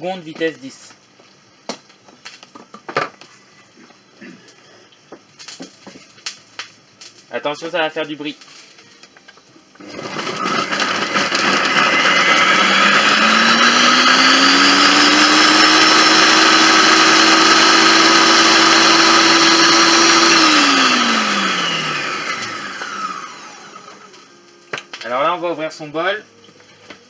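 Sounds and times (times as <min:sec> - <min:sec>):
kitchen robot motor whine: 0:09.8 - 0:24.3.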